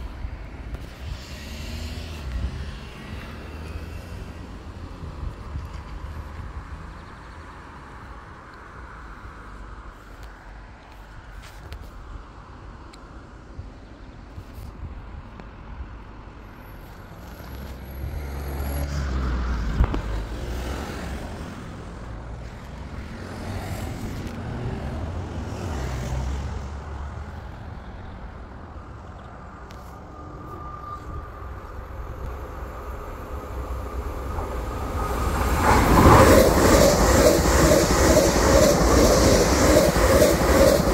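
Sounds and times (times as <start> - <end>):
low traffic rumble: 0.0 - 40.9
electric train passing: 16.5 - 40.9.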